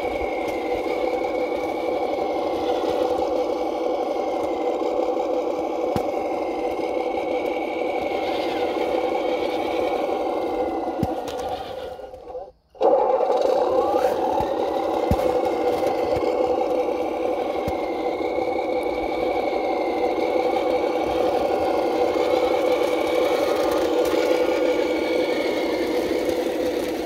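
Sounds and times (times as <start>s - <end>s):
electric motor whine: 0.0s - 27.0s.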